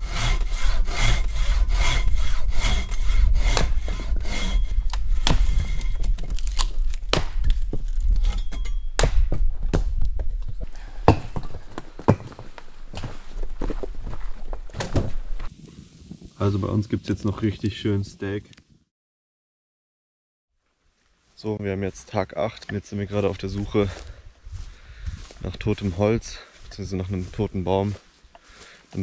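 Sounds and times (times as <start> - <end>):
hand saw cutting log: 0.0 - 6.0
sharp wooden knocks: 0.1 - 4.5, 5.1 - 6.2, 8.9 - 12.5.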